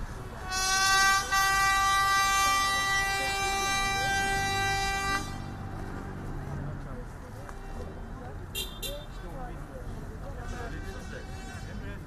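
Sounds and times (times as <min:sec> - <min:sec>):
horn long blast: 0:00.3 - 0:05.7, 0:10.5 - 0:12.0.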